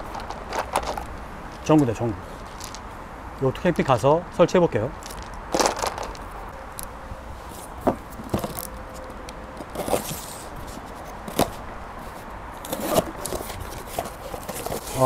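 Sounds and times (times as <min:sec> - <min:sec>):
cardboard and plastic rustling: 0:00.0 - 0:02.8, 0:05.0 - 0:06.4, 0:07.6 - 0:15.0.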